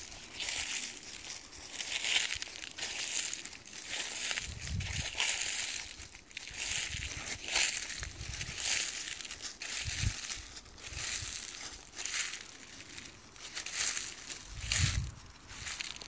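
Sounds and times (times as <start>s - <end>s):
footsteps crunching dry leaves: 0.0s - 16.0s.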